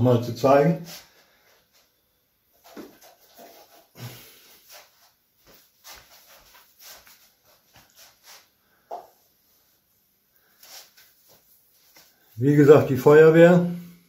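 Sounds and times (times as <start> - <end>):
person breathing: 3.9 - 4.9, 10.3 - 11.1.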